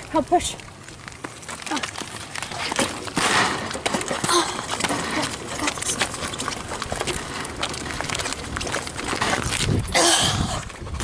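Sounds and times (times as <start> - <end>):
small tyres rolling on asphalt: 0.0 - 11.0.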